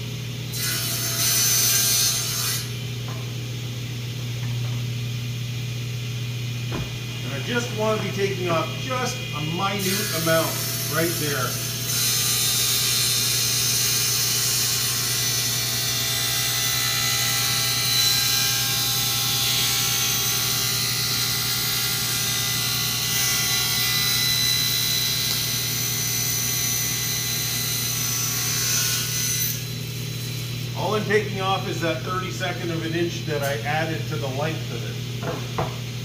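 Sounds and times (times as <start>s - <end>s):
table saw cutting: 0.0s - 2.8s, 7.3s - 34.6s
low motor hum: 2.8s - 9.8s.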